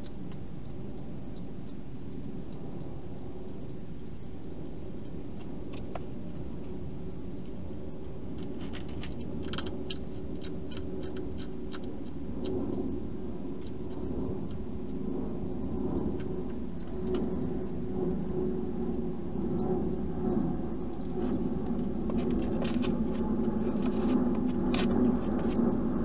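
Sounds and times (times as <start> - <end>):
hedgehog crunching food: 0.0 - 26.0
steady low rumble: 0.0 - 26.0.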